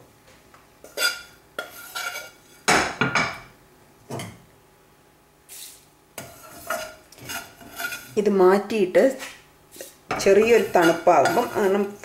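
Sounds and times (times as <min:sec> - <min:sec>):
spoon scraping a frying pan: 0:00.8 - 0:02.7, 0:05.5 - 0:08.3, 0:09.7 - 0:12.0.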